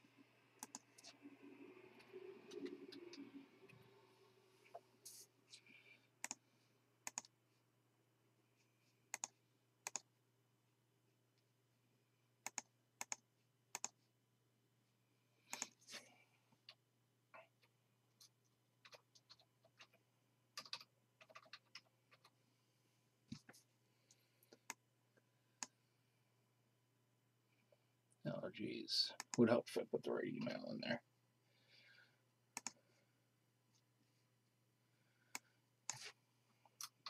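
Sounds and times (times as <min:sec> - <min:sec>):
keyboard and mouse clicks: 0:00.6 - 0:01.2, 0:06.2 - 0:06.4, 0:07.0 - 0:07.3, 0:09.1 - 0:10.1, 0:12.4 - 0:14.0, 0:15.5 - 0:15.8, 0:17.4 - 0:20.0, 0:20.6 - 0:22.4, 0:32.6 - 0:32.8.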